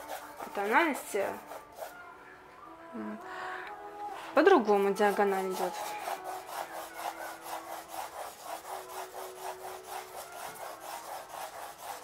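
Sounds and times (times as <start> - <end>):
pencil scratching on paper: 0.0 - 2.0, 4.7 - 12.0.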